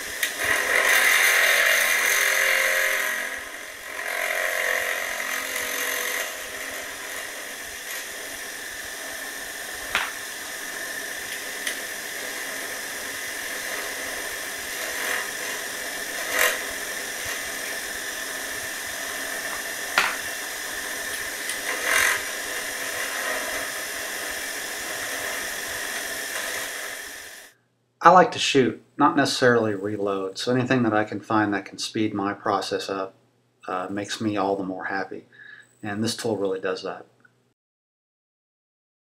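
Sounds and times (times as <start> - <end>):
case trimmer motor whirring: 0.0 - 27.4.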